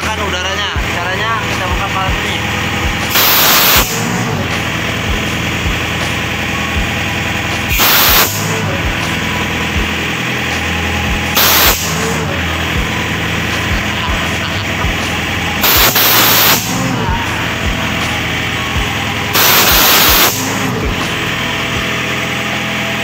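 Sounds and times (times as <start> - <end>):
diesel compressor running: 0.0 - 23.0
compressed air hiss: 3.0 - 9.8, 10.6 - 21.3.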